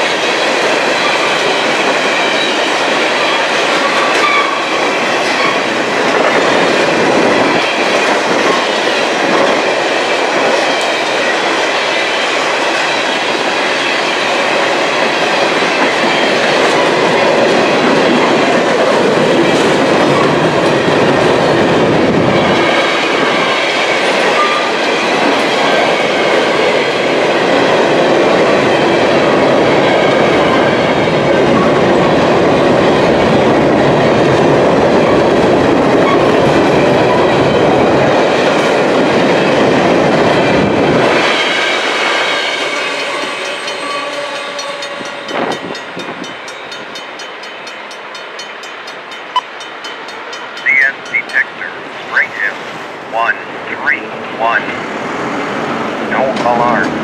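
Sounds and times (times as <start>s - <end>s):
freight train wheels clattering: 0.0s - 51.2s.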